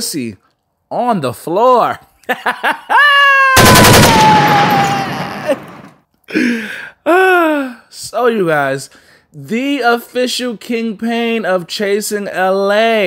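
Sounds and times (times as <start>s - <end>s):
high cry: 2.9s - 5.9s
long falling cry: 2.9s - 5.9s
loud blast of noise: 3.6s - 5.9s.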